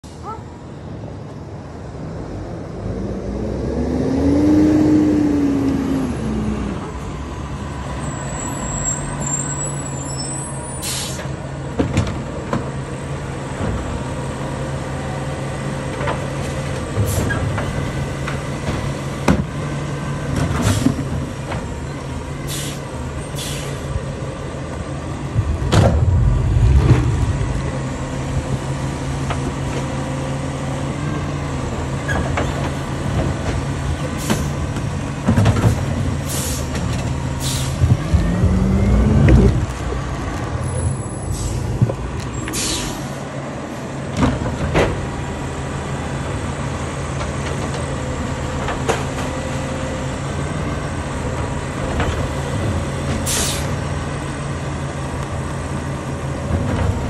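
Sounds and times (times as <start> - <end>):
garbage truck brake squeal: 8.1 - 11.3.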